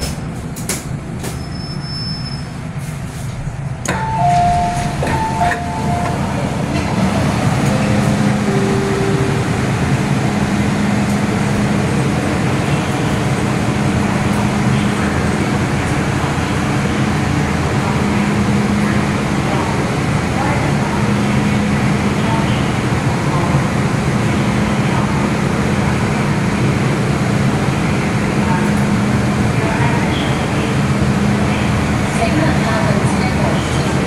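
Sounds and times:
train rumble and hum: 0.0s - 34.0s
train traction motor whine: 3.8s - 20.0s
two-tone door chime beeps: 3.9s - 6.3s.

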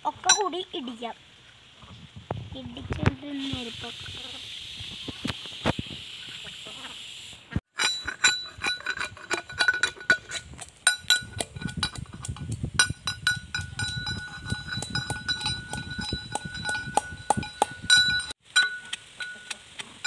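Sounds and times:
pestle pounding in brass mortar: 7.8s - 19.2s.

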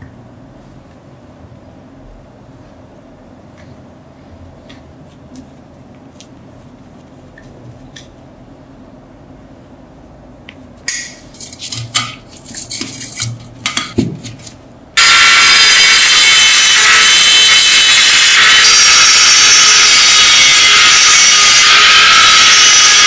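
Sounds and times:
rotary tool grinding metal: 15.0s - 23.0s.

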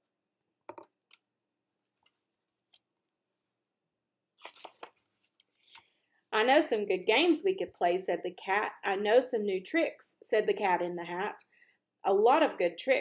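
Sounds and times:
page flicks: 4.4s - 5.0s
paper pages rustling: 4.4s - 5.9s.

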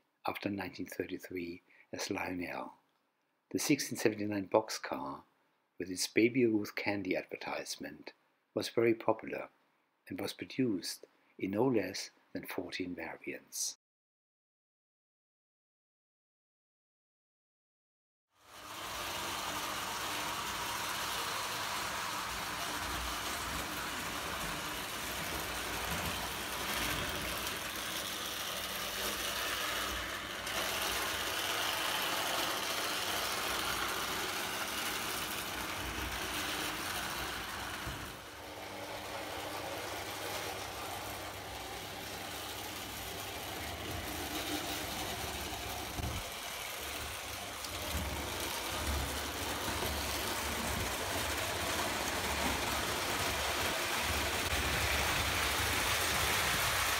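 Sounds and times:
toy train rumbling on track: 18.4s - 56.9s.

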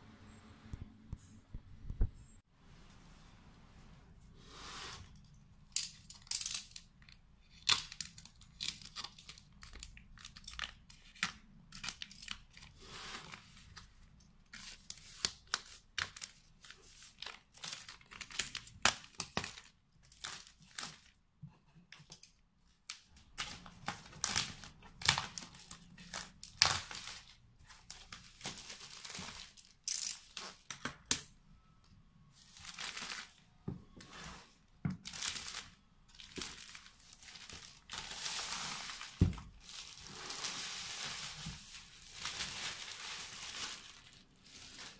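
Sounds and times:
plastic wrap tearing and crinkling: 14.4s - 21.2s, 23.4s - 30.8s, 35.0s - 44.9s.

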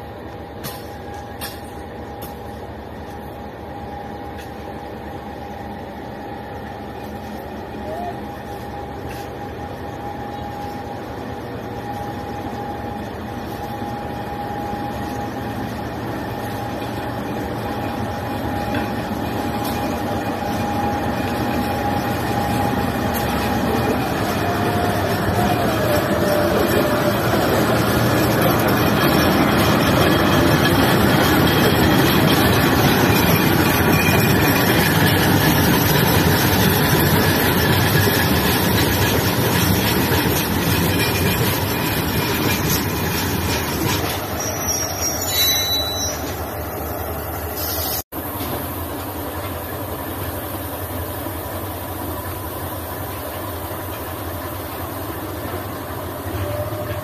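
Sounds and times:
distant train rumble: 0.0s - 57.0s
steel wheels on rail: 0.0s - 57.0s
train wagons rolling past: 0.0s - 57.0s.

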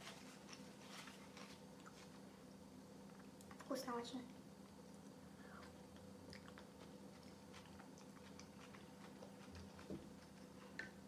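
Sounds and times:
faint chewing: 0.3s - 2.3s, 4.6s - 11.0s
wet mouth clicks: 5.6s - 6.9s.

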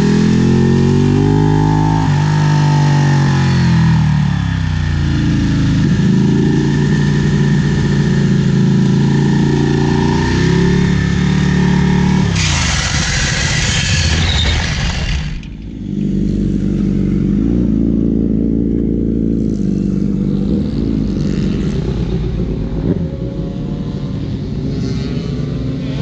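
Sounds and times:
engine drone: 0.0s - 26.0s
loud rushing noise: 12.2s - 15.9s.

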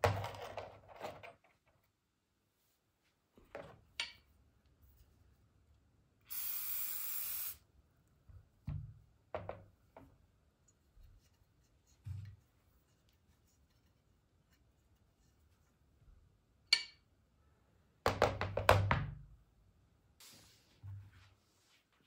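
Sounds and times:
aerosol can spraying: 6.3s - 7.6s.

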